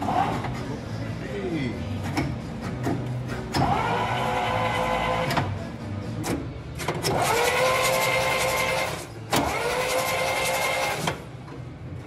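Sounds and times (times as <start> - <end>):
starter motor cranking: 6.8 - 11.3.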